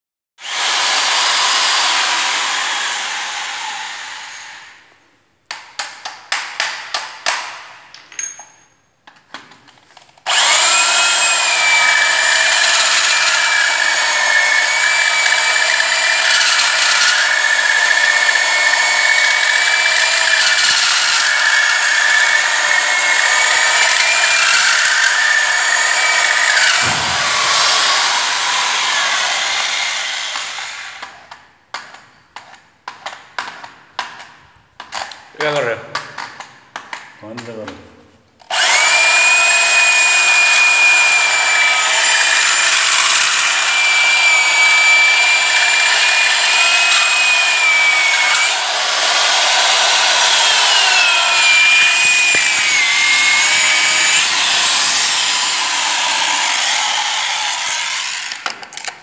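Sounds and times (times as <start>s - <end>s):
electric drill drilling into marble: 0.4s - 4.8s, 10.3s - 31.2s, 38.5s - 58.9s.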